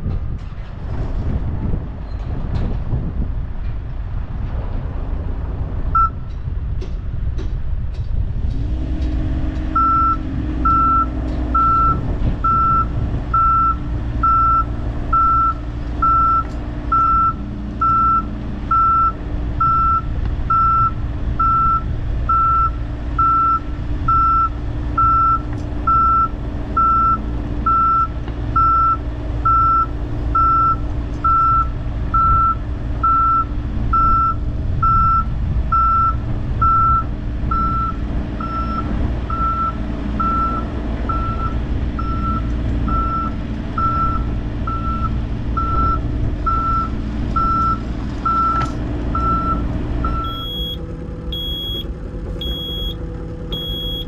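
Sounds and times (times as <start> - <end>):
excavator diesel engine running: 0.0 - 54.0
travel alarm beeping: 6.0 - 6.2, 9.8 - 54.0.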